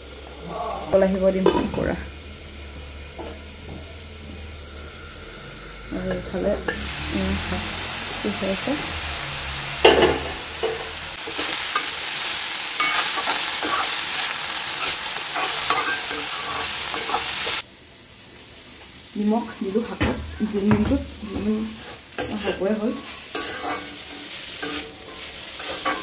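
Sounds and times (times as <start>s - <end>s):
greens sizzling in hot oil: 0.0s - 26.0s
loud metal clank: 9.8s - 10.9s
metal spoon scraping pan: 9.8s - 17.6s, 20.0s - 26.0s.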